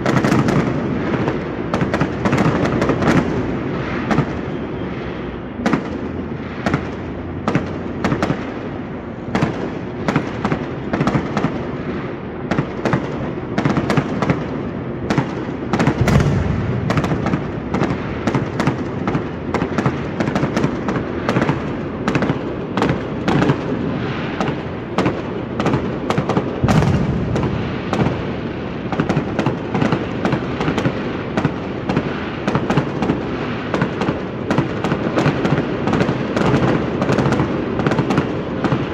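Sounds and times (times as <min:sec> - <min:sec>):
firework bangs and crackles: 0:00.0 - 0:38.9
heavy firework booms: 0:00.0 - 0:38.9
low rumble: 0:16.0 - 0:18.3.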